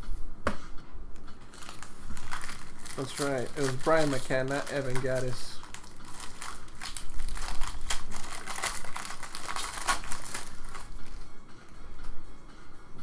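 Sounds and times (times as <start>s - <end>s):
plastic wrapper crinkling: 1.5s - 11.2s.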